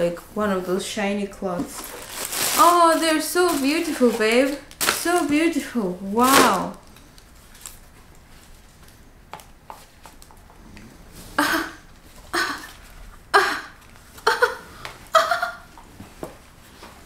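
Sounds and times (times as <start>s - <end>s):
woman laughing breathily: 11.4s - 15.7s.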